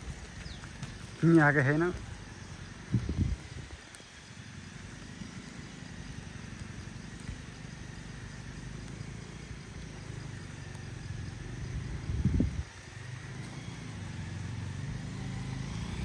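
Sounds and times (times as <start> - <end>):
motorcycle engine at low revs: 0.0 - 16.0.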